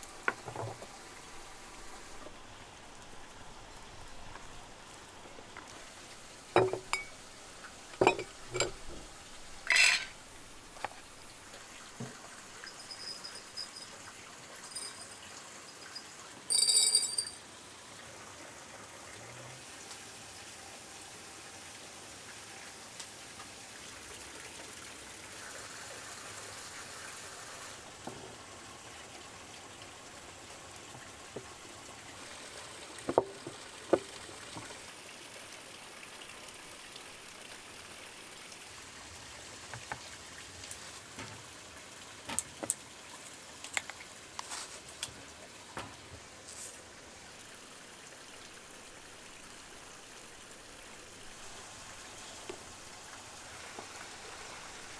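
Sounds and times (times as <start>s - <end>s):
running water: 0.0s - 54.9s
glass clink: 6.6s - 7.2s, 8.0s - 8.8s, 9.7s - 10.2s, 12.6s - 14.0s, 14.6s - 17.4s.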